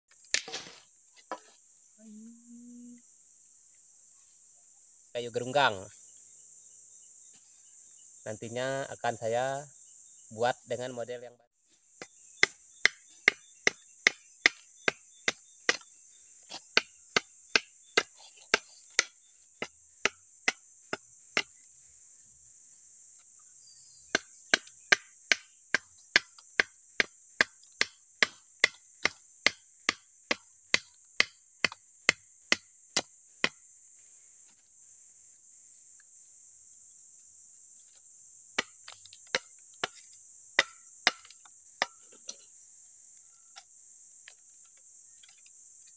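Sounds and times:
insects droning: 0.1s - 45.9s
blade chopping into wood: 0.3s - 1.4s, 12.0s - 15.9s, 16.5s - 21.5s, 24.1s - 33.6s, 38.6s - 42.4s.

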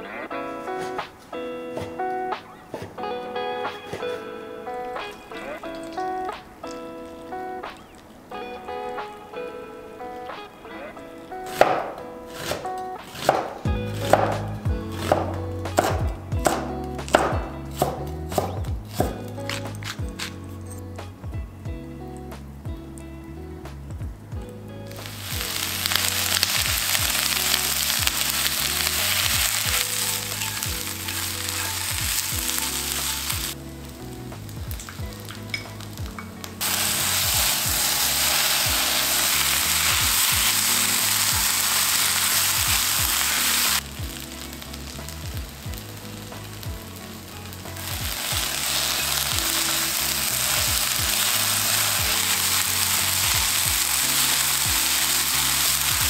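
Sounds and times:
food sizzling in a pan: 24.9s - 56.0s.

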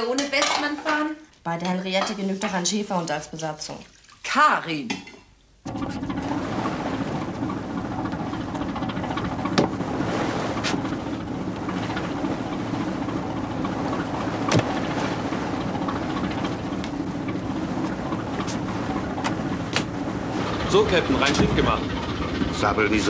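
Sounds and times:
water noise: 2.0s - 4.8s, 5.5s - 23.0s
wind: 5.6s - 23.0s
diesel engine hum: 5.7s - 23.0s
sharp knocks: 7.2s - 9.8s, 14.4s - 15.0s, 15.9s - 20.0s.

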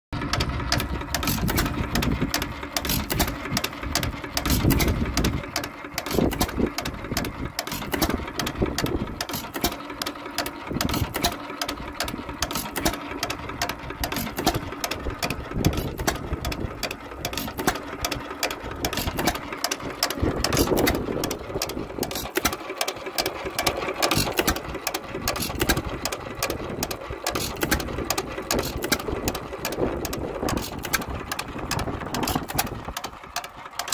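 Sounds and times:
hit-and-miss engine running: 0.2s - 33.9s.

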